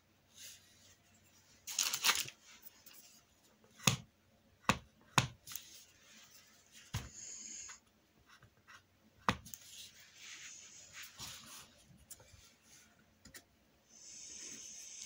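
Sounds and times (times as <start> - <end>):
paintbrush brushing paint: 9.6 - 12.9.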